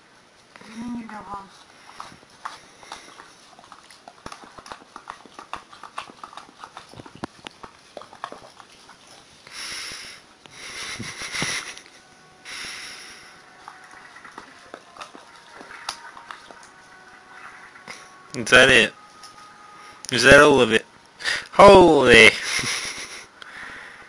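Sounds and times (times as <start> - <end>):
dog licking plastic pot: 1.5 - 10.0, 13.5 - 18.4.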